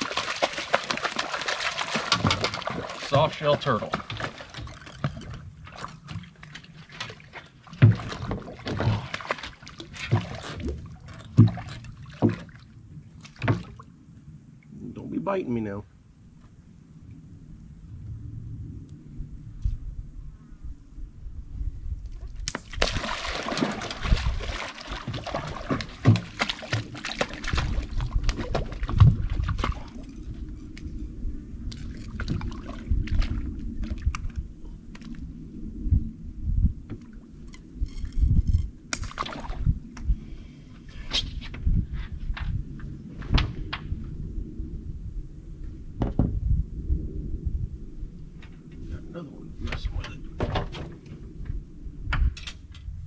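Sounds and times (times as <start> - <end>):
water sloshing against boat: 0.0 - 14.0, 22.3 - 35.3
knocks against boat hull: 46.0 - 46.4.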